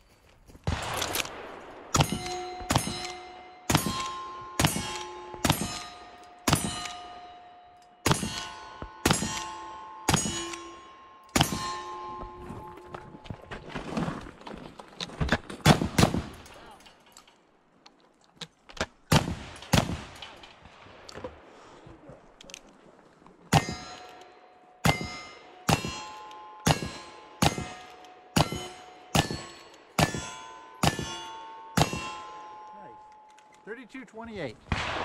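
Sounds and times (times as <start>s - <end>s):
shotgun shots: 0.6s - 7.1s, 15.6s - 16.4s, 19.1s - 20.4s, 24.8s - 26.1s, 26.7s - 30.2s, 34.7s - 35.0s
bullet clanging on steel target: 0.9s - 13.1s, 23.5s - 33.7s.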